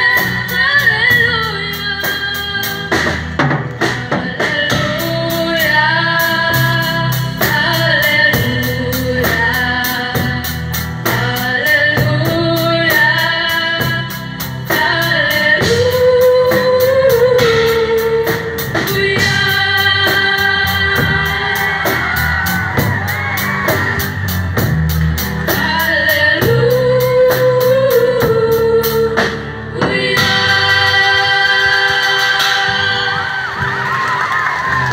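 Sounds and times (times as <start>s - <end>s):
live band playing: 0.0s - 34.9s
girls singing into microphones: 14.7s - 22.9s, 25.5s - 33.8s.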